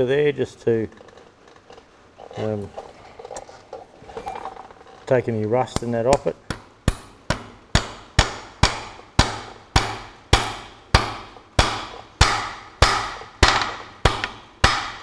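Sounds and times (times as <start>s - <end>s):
hammer striking steel: 6.5s - 15.0s.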